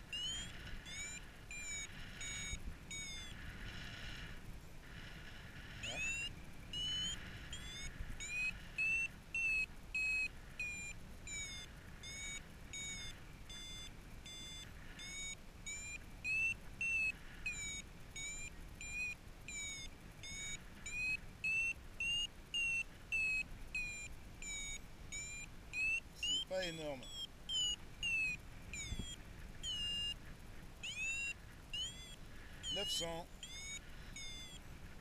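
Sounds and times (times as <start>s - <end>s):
low wind rumble: 0.0s - 26.2s
variometer short high beeps: 0.1s - 3.4s, 5.8s - 30.2s, 30.8s - 34.6s.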